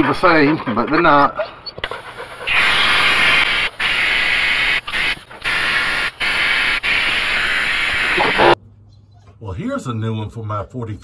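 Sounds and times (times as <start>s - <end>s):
pneumatic brake bleeder hissing: 1.9s - 8.6s.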